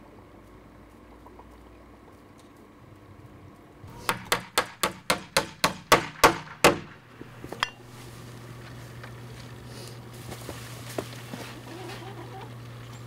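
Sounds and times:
hammer driving a nail: 3.9s - 7.8s.

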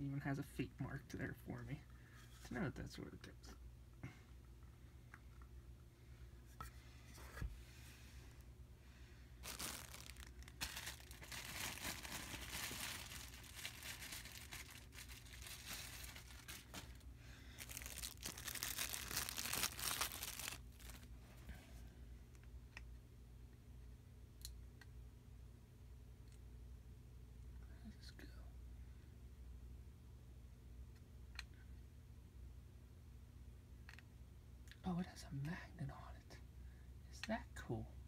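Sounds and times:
plastic bags crinkling and tearing: 9.4s - 21.1s.

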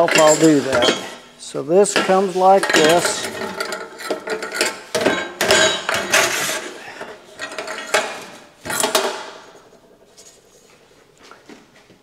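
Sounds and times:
metal tube scraping and clanking: 0.0s - 9.4s.

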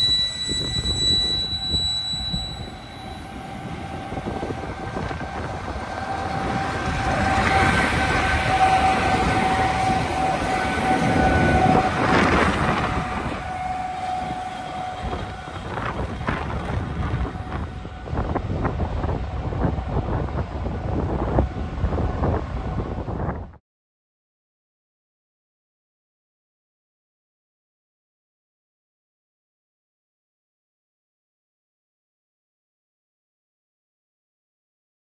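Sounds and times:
train wheels rumbling: 0.0s - 23.3s
electric locomotive whine: 0.0s - 23.6s.

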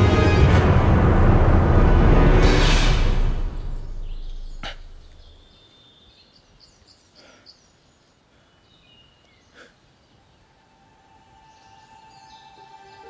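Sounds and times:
low rumble: 0.0s - 5.5s
small birds chirping: 3.6s - 13.0s.

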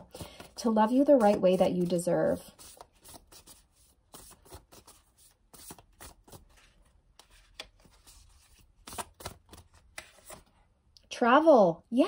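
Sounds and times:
cards being shuffled: 0.0s - 10.5s.

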